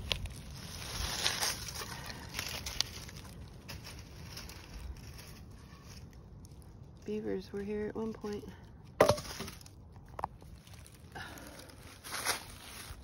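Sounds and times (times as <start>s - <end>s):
twigs snapping: 0.0s - 4.9s
footsteps through dry leaves: 0.0s - 8.4s, 9.1s - 13.0s.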